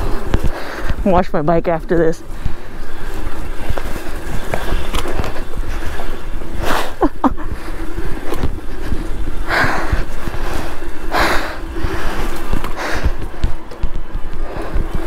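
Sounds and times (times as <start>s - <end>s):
wind buffeting microphone: 0.0s - 15.0s
heavy panting breaths: 6.6s - 13.6s.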